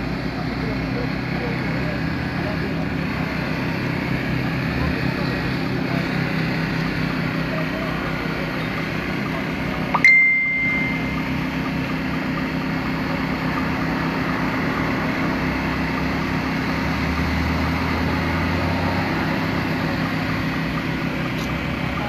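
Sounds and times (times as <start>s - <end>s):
engine idling: 0.0s - 22.0s
short high beep: 9.9s - 11.3s.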